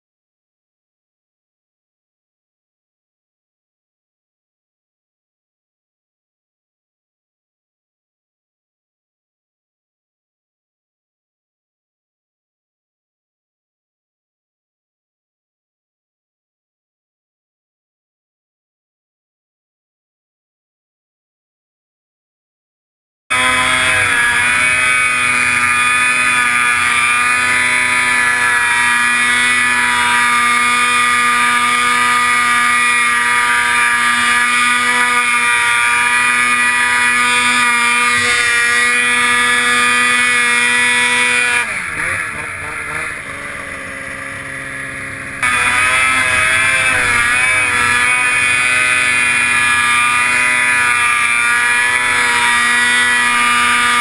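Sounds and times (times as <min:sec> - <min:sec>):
snowmobile engine running hard: 0:23.3 - 0:54.0.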